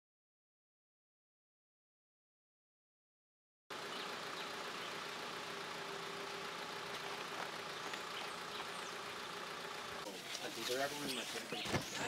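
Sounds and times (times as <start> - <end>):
low machine hum: 3.7 - 10.4.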